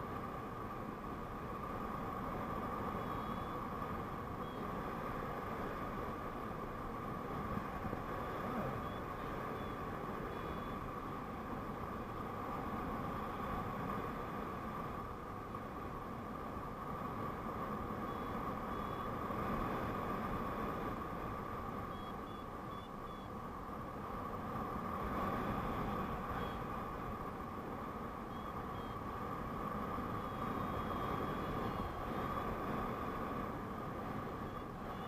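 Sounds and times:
faint short high beeps: 3.0 - 3.6, 8.2 - 10.8, 21.9 - 23.3, 28.3 - 29.0
wind rushing over microphone: 23.8 - 35.0.

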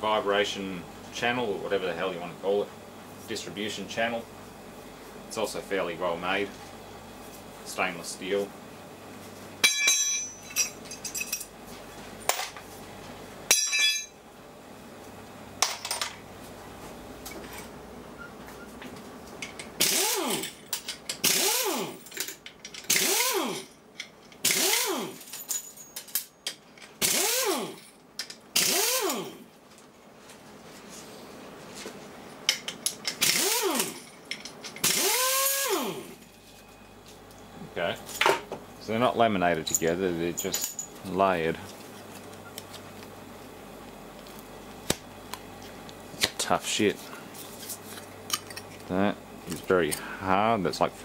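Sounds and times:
air ratchet motor whining: 19.8 - 20.5, 21.2 - 22.0, 22.9 - 23.7, 24.4 - 25.2, 27.0 - 27.8, 28.6 - 29.4, 33.2 - 34.0, 34.8 - 36.1.

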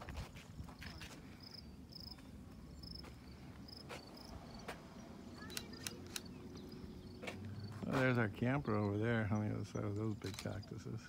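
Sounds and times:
footsteps crunching on gravel: 0.0 - 1.4, 6.6 - 8.6
insect chirping: 1.4 - 7.8.

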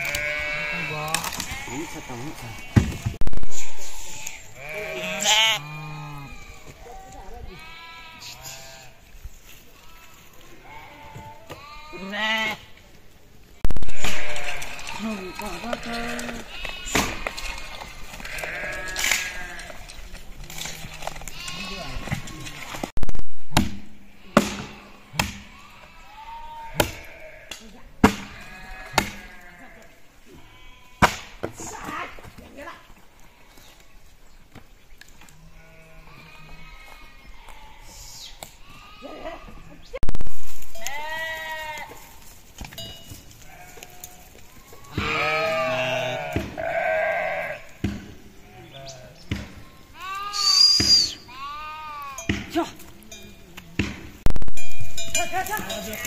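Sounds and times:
sheep bleating: 0.0 - 3.2, 3.8 - 9.0, 9.8 - 12.7, 13.8 - 19.9, 20.9 - 22.7, 24.1 - 27.7, 28.3 - 31.0, 35.4 - 38.0, 38.6 - 39.9, 40.8 - 42.1, 43.4 - 47.8, 48.4 - 52.3
high thin whistle-like tone: 50.4 - 51.2.

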